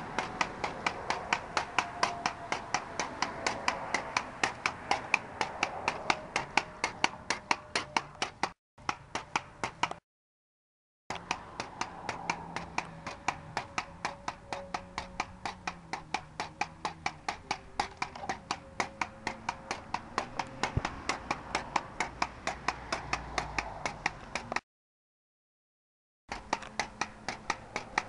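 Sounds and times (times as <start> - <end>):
rapid even clicking: 0.0 - 10.0, 11.1 - 24.6, 26.3 - 28.0.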